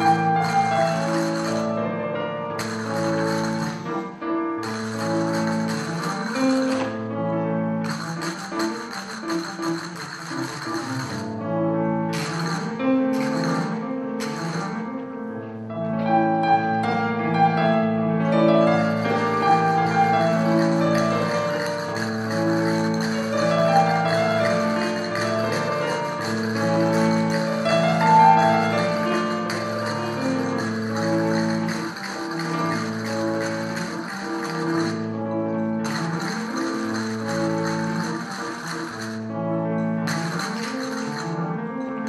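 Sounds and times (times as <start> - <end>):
instrumental music with held notes: 0.0 - 42.0.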